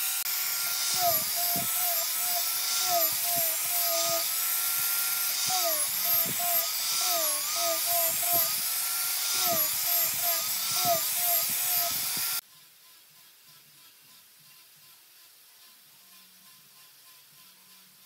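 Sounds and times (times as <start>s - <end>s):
angle grinder sanding wood: 0.0s - 12.4s.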